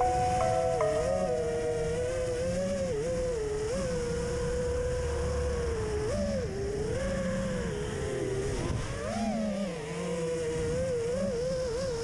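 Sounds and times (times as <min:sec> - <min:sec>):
quadcopter motors whining: 0:03.0 - 0:12.0.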